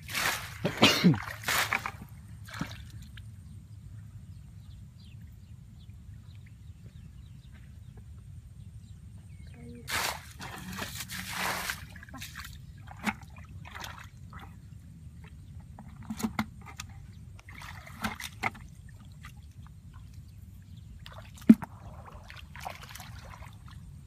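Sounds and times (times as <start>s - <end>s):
water sloshing and splashing: 0.0s - 3.3s, 9.9s - 24.0s.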